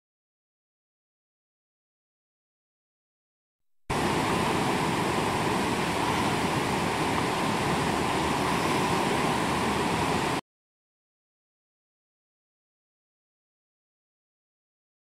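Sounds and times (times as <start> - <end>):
rushing whitewater: 3.9 - 10.4.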